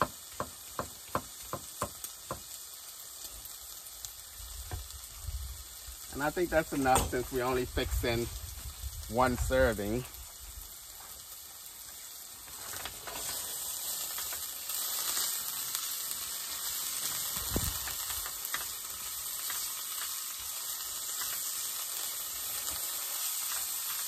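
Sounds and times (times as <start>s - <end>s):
spatula tapping a pan: 0.0s - 2.5s
bacon sizzling in a frying pan: 0.0s - 24.0s.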